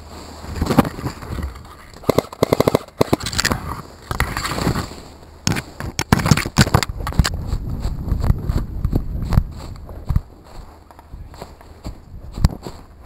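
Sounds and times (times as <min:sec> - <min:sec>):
movement through dry leaves: 0:00.0 - 0:01.8, 0:03.5 - 0:05.8, 0:07.3 - 0:13.0
rapid sharp cracks: 0:00.7 - 0:04.8, 0:05.4 - 0:07.4.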